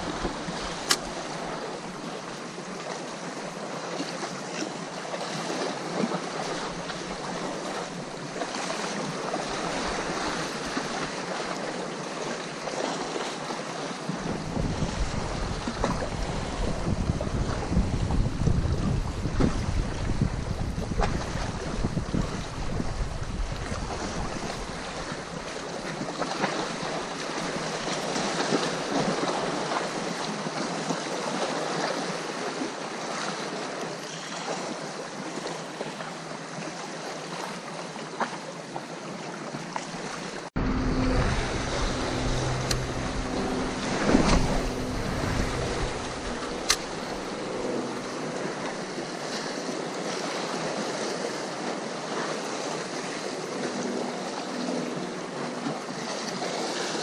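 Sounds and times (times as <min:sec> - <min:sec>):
sea waves washing on shore: 0:00.0 - 0:33.8, 0:40.0 - 0:57.0
wind on microphone: 0:14.1 - 0:26.6, 0:40.6 - 0:49.9
low steady hum: 0:40.6 - 0:50.2.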